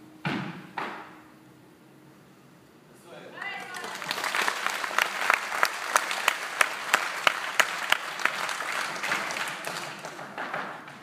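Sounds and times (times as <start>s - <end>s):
audience applauding: 3.4s - 10.8s
sharp rhythmic claps: 3.4s - 11.0s.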